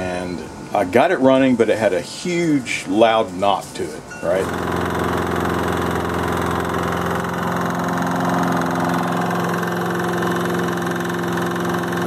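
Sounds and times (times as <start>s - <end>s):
lawn mower engine running: 4.2s - 12.0s
loud engine knock: 4.4s - 12.0s.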